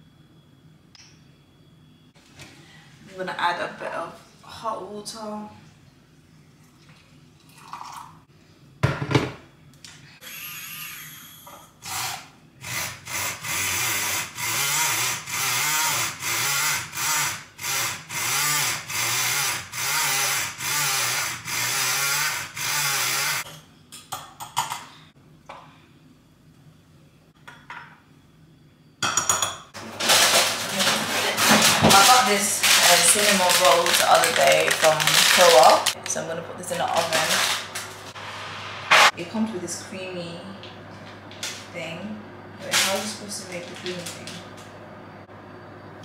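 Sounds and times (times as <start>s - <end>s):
milk frother buzzing: 10.2s - 23.5s, 29.8s - 36.0s.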